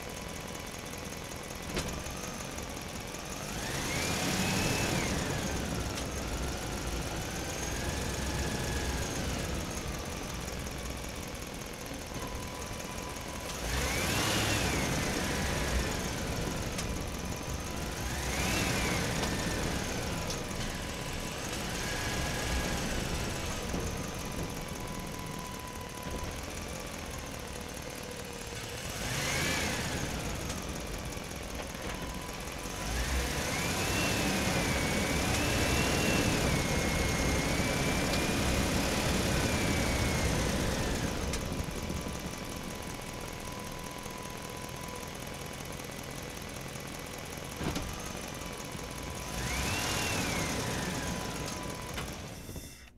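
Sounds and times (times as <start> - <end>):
truck engine running: 0.0 - 52.6
faint steady high tone: 51.2 - 52.9.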